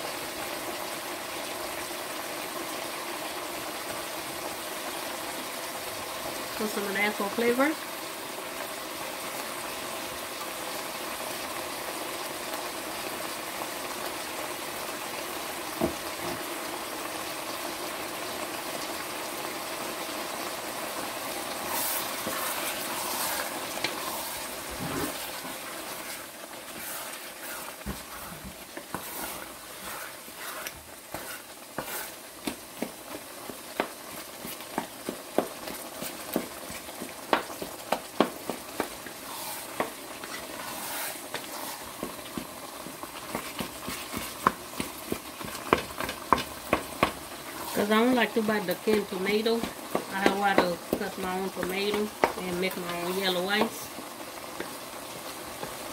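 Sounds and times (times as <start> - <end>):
vegetables sizzling in a pan: 0.0 - 55.9
wooden spoon scraping a pan: 21.4 - 53.9.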